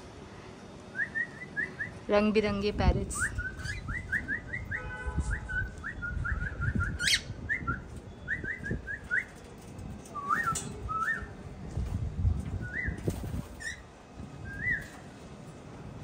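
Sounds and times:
cockatiels whistling chirps: 0:03.3 - 0:04.8, 0:05.4 - 0:09.3.

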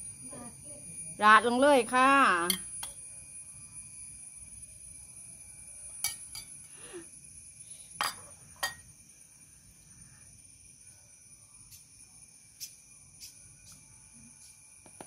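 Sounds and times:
metal spoon clinking on bowl: 0:02.4 - 0:03.0, 0:06.0 - 0:06.5, 0:08.0 - 0:08.8.

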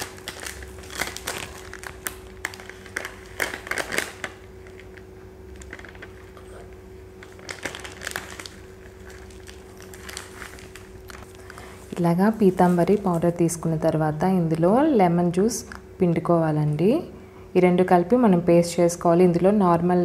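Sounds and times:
plastic pouch crinkling: 0:00.0 - 0:13.1
faint hum: 0:00.0 - 0:20.0.

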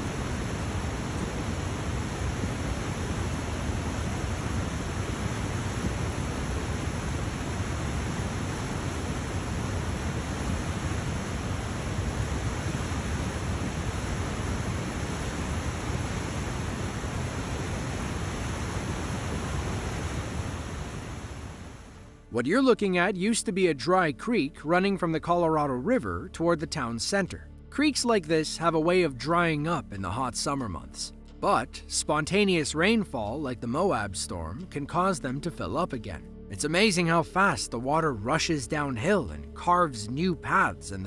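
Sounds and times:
flood water rushing: 0:00.0 - 0:22.0.

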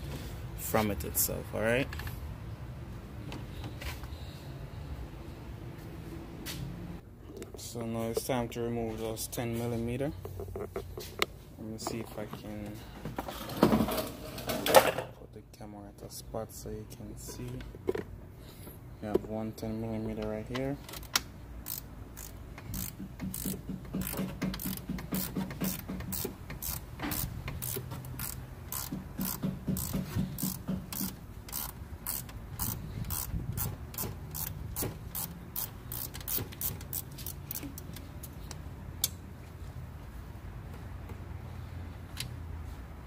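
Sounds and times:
socket ratchet clicking: 0:21.0 - 0:39.2.

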